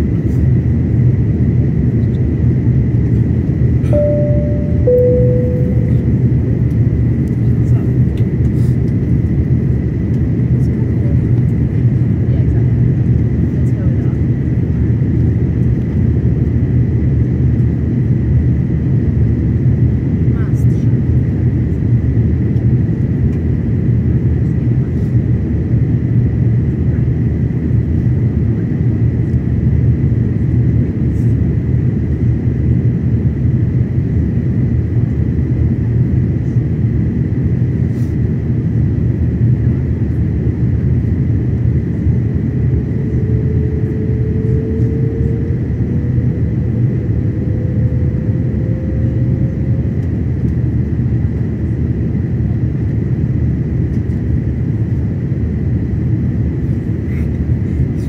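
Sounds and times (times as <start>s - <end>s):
aircraft cabin rumble: 0.0s - 58.0s
thin steady whine: 3.8s - 6.7s, 40.9s - 51.9s
faint rising tone: 3.9s - 6.2s.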